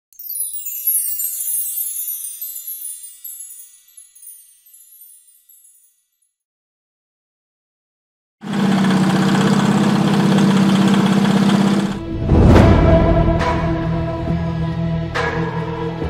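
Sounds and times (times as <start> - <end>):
shimmering chime: 0.1 - 6.4.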